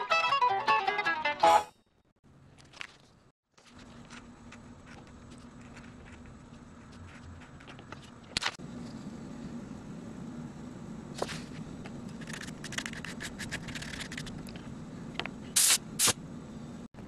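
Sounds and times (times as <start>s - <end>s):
steady low hum: 3.6s - 17.0s
short loud hissing bursts: 15.6s - 16.2s.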